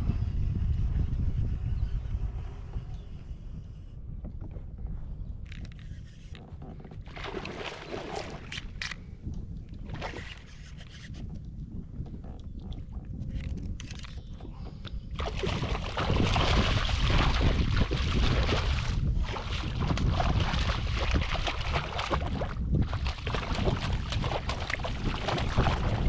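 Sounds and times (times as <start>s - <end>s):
water sounds: 6.3s - 9.0s, 12.2s - 26.0s
fish thrashing and splashing: 7.1s - 9.0s, 15.2s - 26.0s
small clicks: 12.4s - 15.0s.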